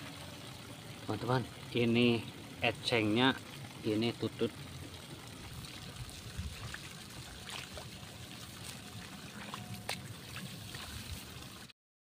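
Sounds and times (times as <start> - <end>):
water trickling: 0.0 - 11.7.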